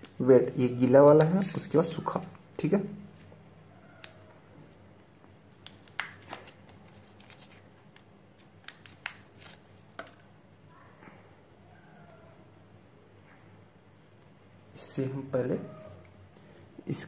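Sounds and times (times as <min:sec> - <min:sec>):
wipe sachets crinkling: 0:01.1 - 0:02.1, 0:05.0 - 0:10.2.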